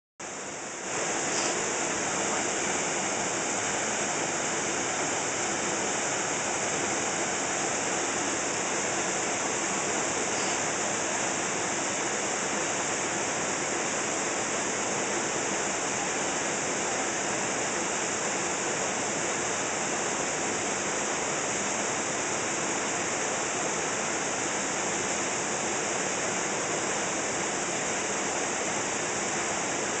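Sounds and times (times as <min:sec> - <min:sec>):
waterfall rushing: 0:00.5 - 0:15.0.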